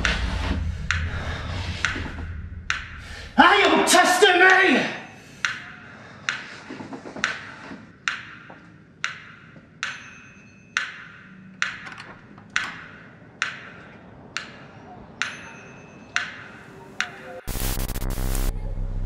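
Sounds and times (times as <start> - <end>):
sharp ticks: 0.8 - 3.0, 5.3 - 7.4
faint high ringing tones: 9.7 - 11.6, 15.2 - 17.4.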